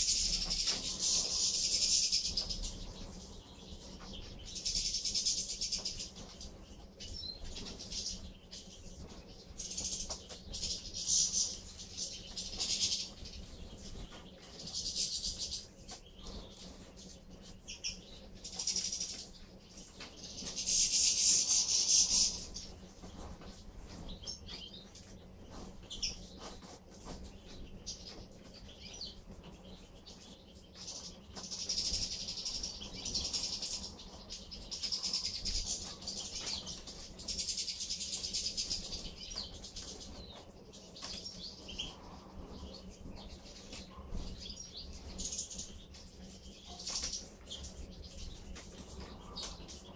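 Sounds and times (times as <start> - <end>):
goldfinches twittering: 0.0 - 16.8, 20.0 - 23.2.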